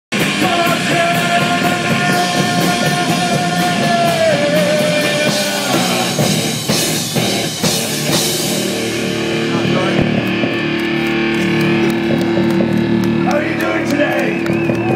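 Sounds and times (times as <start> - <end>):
drum kit with cymbals: 0.1 - 10.6
distorted electric guitars: 0.1 - 14.9
person singing: 0.2 - 6.4.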